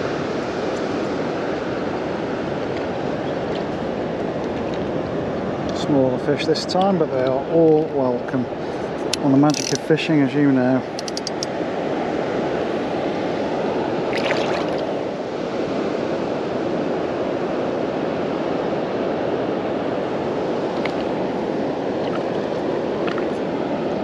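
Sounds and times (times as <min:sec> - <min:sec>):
water rushing over weir: 0:13.3 - 0:15.8, 0:19.3 - 0:24.0.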